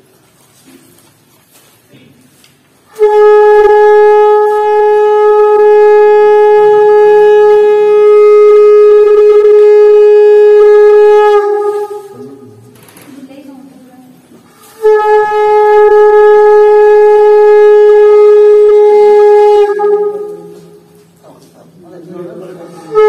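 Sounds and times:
conch shell blown: 0:02.8 - 0:12.6, 0:14.5 - 0:21.2, 0:22.6 - 0:23.0.

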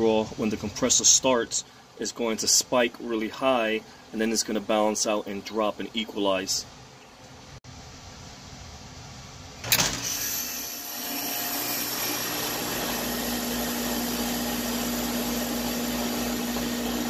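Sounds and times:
sharp clunk: 0:09.6 - 0:10.1.

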